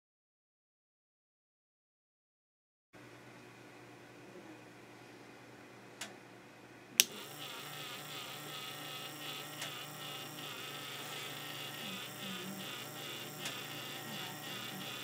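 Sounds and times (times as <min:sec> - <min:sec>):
sharp click: 0:07.0 - 0:07.2
motor and gears buzzing whine: 0:07.0 - 0:15.0.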